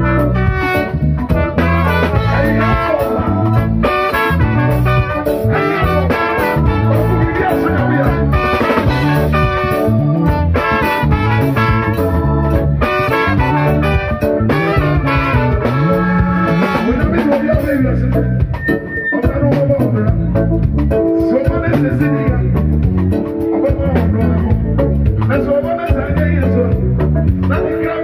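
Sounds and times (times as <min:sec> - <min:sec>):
alto saxophone: 0:00.0 - 0:17.3
trumpet: 0:00.0 - 0:20.2
trombone: 0:00.0 - 0:22.0
drum kit: 0:00.0 - 0:28.0
keyboard: 0:00.0 - 0:28.0.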